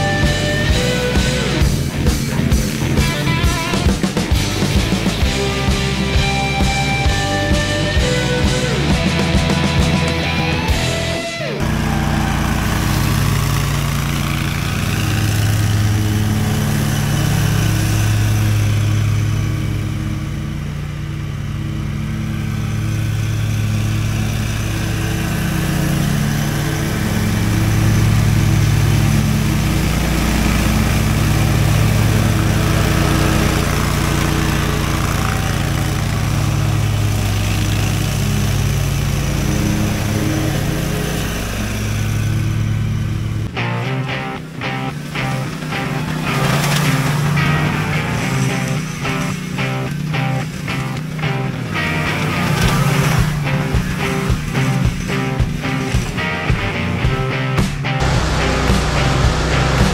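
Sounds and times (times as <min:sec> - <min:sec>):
mower engine running: 0:00.0 - 0:59.9.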